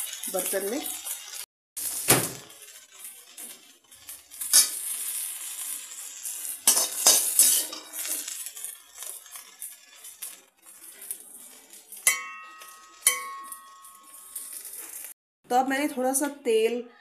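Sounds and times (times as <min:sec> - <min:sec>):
faint sizzle of hot oil: 0:00.0 - 0:15.2
metal spatula clanking against pan: 0:06.6 - 0:08.3, 0:11.9 - 0:14.6.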